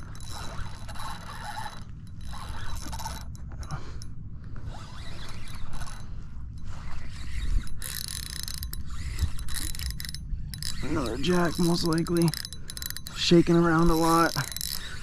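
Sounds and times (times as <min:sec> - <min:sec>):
fishing reel whirring: 0:00.0 - 0:15.0.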